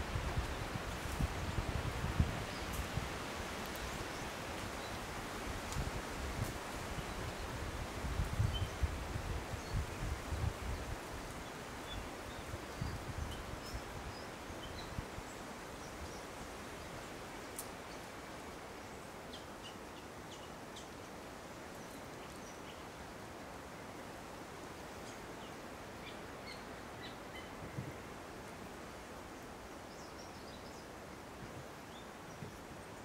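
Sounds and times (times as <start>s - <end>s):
wind gusts buffeting: 0.0s - 3.9s
wind rustling through leaves: 0.0s - 33.0s.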